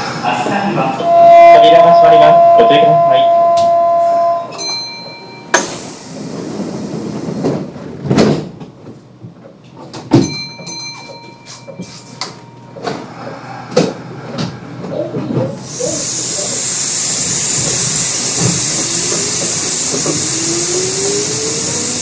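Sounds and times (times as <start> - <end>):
short ringing tones: 1.0 - 5.6
train doors thudding shut: 5.5 - 9.0, 9.8 - 10.8.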